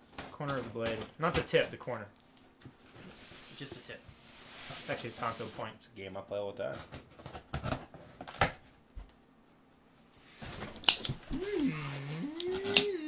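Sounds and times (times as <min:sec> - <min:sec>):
person making sliding vocal sound: 0:11.3 - 0:13.0.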